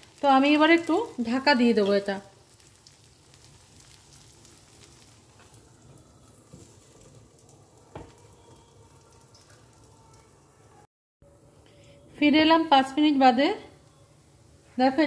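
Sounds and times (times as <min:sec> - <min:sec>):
batter sizzling in a pan: 0:00.0 - 0:10.7.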